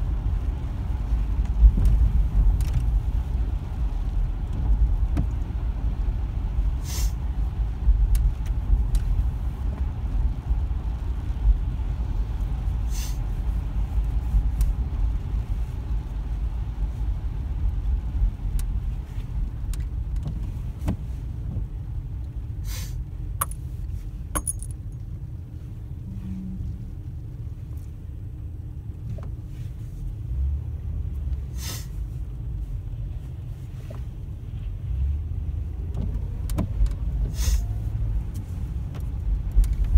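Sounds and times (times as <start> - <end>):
car engine and tyre rumble: 0.0 - 39.9.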